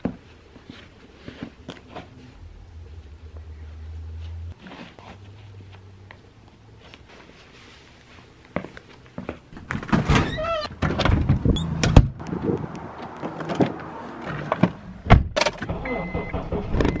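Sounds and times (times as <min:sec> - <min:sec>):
door thudding shut: 0:09.6 - 0:12.2
door squeaking: 0:09.7 - 0:12.0.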